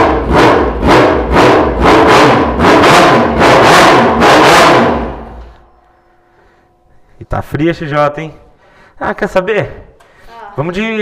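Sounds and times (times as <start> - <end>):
motorcycle engine revving: 0.0 - 5.6.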